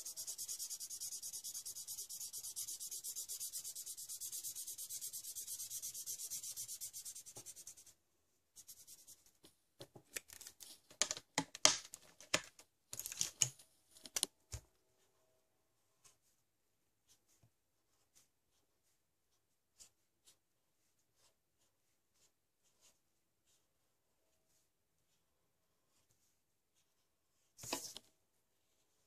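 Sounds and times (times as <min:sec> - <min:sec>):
marker scratching on paper: 0:00.0 - 0:08.0, 0:08.6 - 0:09.3
irregular scratches and taps: 0:27.6 - 0:28.1.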